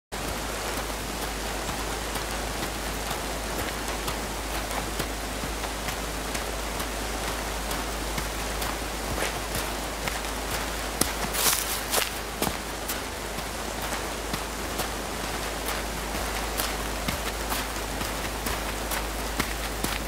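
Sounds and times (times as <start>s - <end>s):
rain falling: 0.1s - 20.0s
low steady hum: 0.2s - 20.0s
footsteps on leaf litter: 7.7s - 20.0s.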